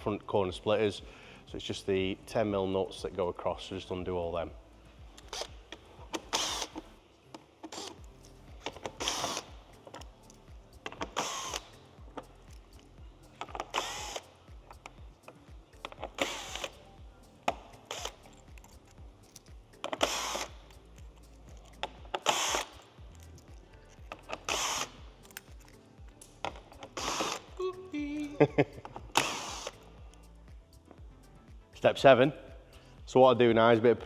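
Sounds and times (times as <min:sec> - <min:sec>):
background music: 0:00.0 - 0:34.0
power socket tool bursts: 0:06.2 - 0:06.8, 0:09.0 - 0:09.5, 0:11.1 - 0:11.7, 0:13.7 - 0:14.2, 0:16.2 - 0:16.7, 0:19.9 - 0:20.5, 0:22.2 - 0:22.8, 0:24.5 - 0:25.0, 0:27.0 - 0:27.4, 0:29.2 - 0:29.8.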